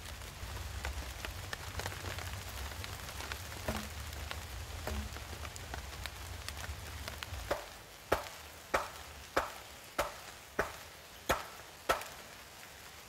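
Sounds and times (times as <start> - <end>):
wooden club knocking on stake: 3.7 - 4.0, 4.9 - 5.1, 7.5 - 12.1.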